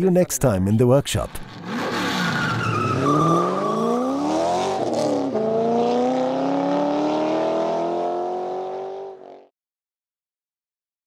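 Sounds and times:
car engine accelerating: 0:01.4 - 0:09.5.

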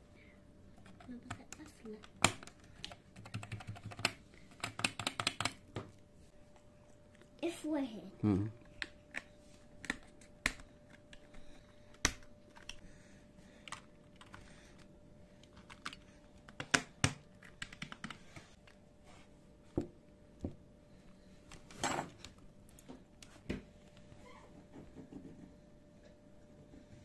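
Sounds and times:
computer keyboard keys clicking: 0:00.8 - 0:05.6, 0:13.6 - 0:18.3.

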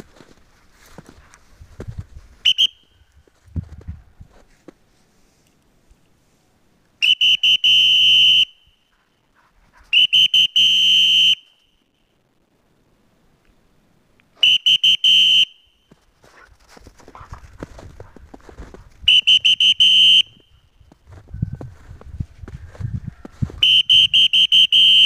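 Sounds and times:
crunching steps: 0:00.0 - 0:04.8, 0:15.9 - 0:23.9
dog whistle blasts: 0:02.4 - 0:02.9, 0:07.0 - 0:08.8, 0:09.9 - 0:11.7, 0:14.4 - 0:15.8, 0:19.1 - 0:20.6, 0:23.6 - 0:25.0.

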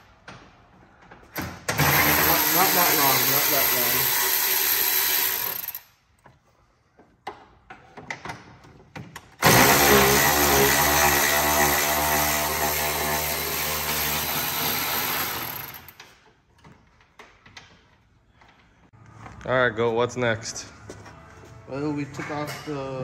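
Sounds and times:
electric ratchet motor running: 0:01.8 - 0:05.8, 0:09.4 - 0:15.9.

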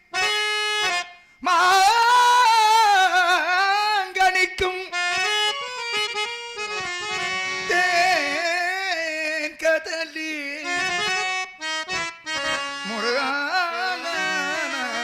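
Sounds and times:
harmonium: 0:00.0 - 0:15.0
man singing: 0:01.4 - 0:06.0, 0:07.1 - 0:11.3, 0:12.4 - 0:15.0.

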